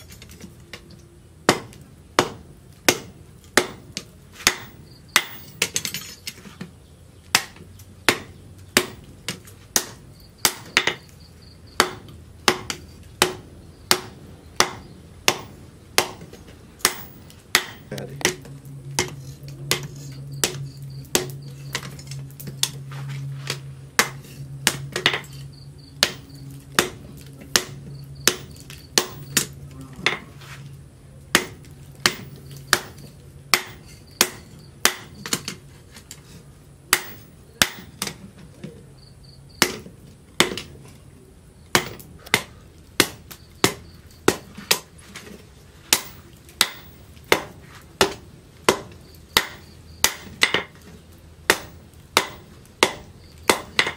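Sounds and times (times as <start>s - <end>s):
low steady hum: 0.0s - 53.9s
hammer clanging on hot steel: 1.5s - 6.4s, 11.8s - 30.4s, 31.3s - 35.6s, 36.9s - 38.2s, 39.6s - 40.7s, 41.7s - 44.9s, 45.9s - 50.9s, 51.5s - 53.9s.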